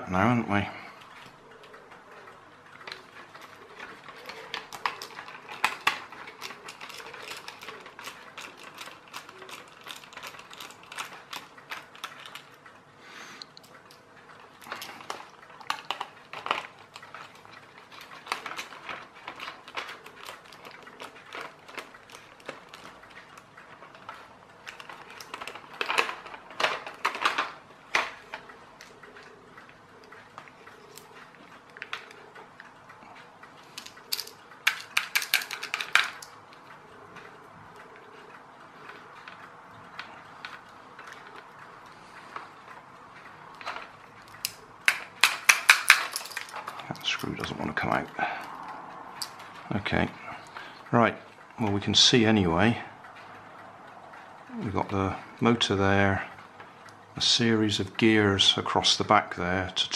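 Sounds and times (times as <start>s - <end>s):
screwdriver and plastic parts clicking: 2.9s - 12.6s, 33.7s - 36.3s, 43.5s - 47.5s.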